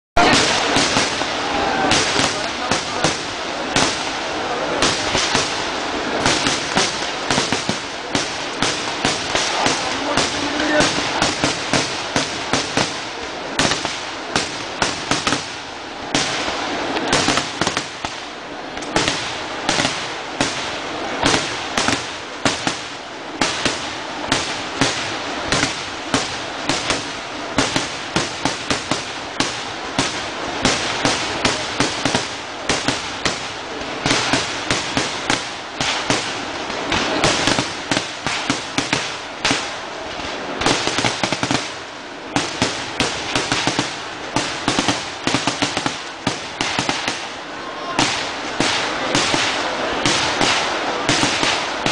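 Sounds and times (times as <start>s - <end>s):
firecrackers banging: 0.2s - 51.9s
firework crackling: 0.2s - 51.9s.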